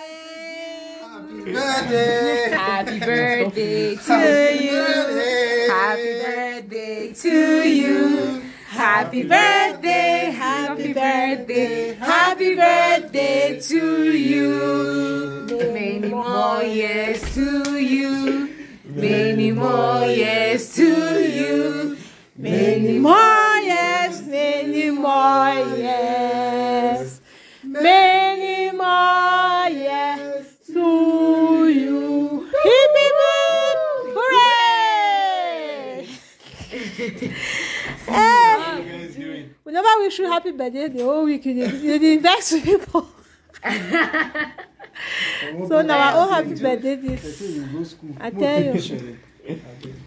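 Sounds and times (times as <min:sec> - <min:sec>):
group singing without instruments: 0:00.0 - 0:36.3.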